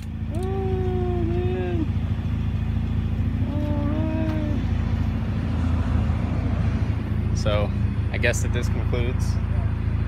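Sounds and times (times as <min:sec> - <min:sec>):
car engine idling: 0:00.0 - 0:10.0
voice holding drawn-out notes: 0:03.4 - 0:04.8.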